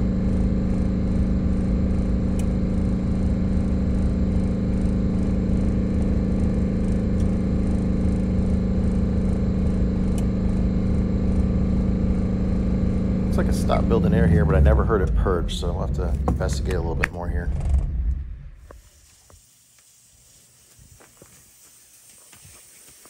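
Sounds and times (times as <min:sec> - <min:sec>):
bus engine droning: 0:00.0 - 0:18.7
air compressor running: 0:00.0 - 0:23.0.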